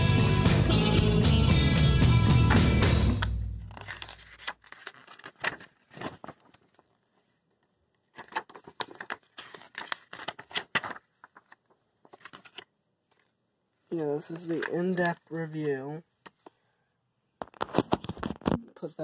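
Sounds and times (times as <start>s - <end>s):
paper pages rustling and flapping: 3.2s - 16.5s, 17.4s - 19.0s.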